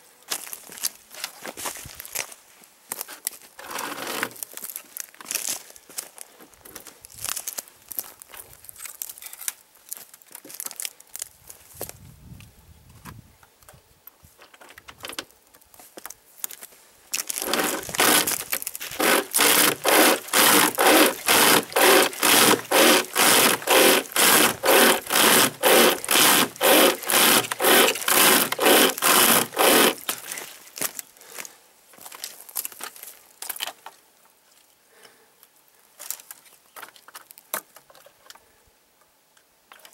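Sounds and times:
chain rasping through a log: 3.6 - 4.4, 17.3 - 30.2.

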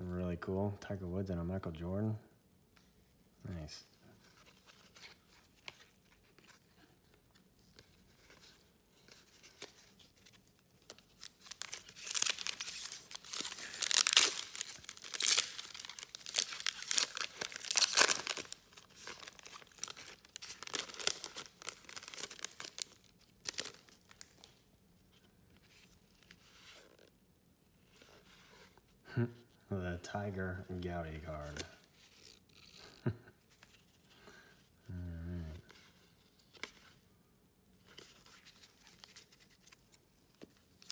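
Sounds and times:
card pack wrapper tearing: 10.8 - 24.5.

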